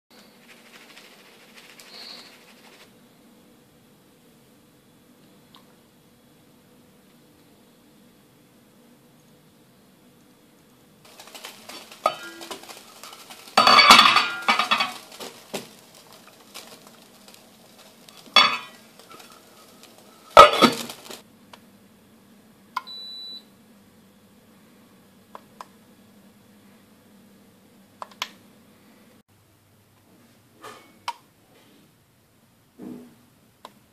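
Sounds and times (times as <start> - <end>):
metal pot clanking: 11.8 - 15.2, 18.2 - 19.3, 20.4 - 21.1.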